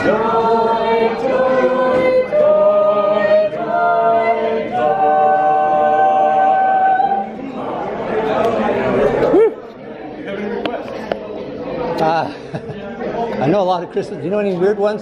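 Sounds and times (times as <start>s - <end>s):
vocal quartet singing a cappella: 0.0s - 9.1s.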